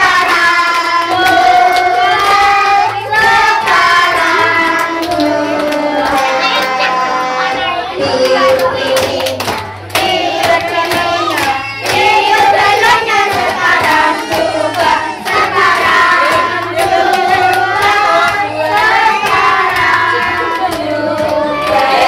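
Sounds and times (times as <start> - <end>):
people singing a birthday song: 0.0 - 22.0.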